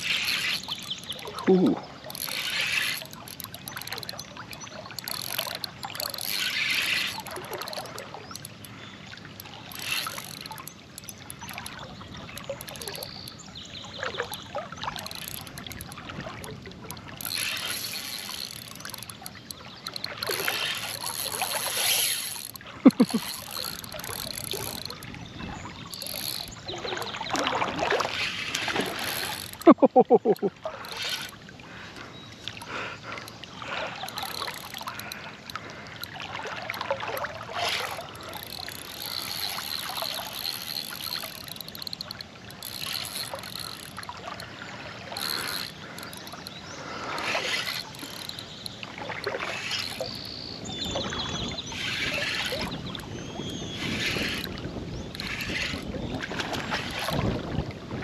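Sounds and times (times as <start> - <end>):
wading swishes: 0.0 - 8.3, 14.0 - 58.0
river water trickling and splashing: 0.0 - 58.0
sharp ticks: 2.1 - 8.8, 9.4 - 13.4, 14.3 - 25.1, 25.9 - 26.6, 34.0 - 36.2, 37.8 - 44.5, 45.2 - 48.8, 49.6 - 50.4.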